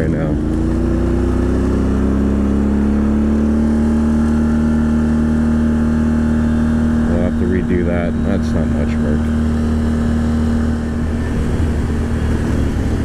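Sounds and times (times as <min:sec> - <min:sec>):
atv engine running: 0:00.0 - 0:13.0.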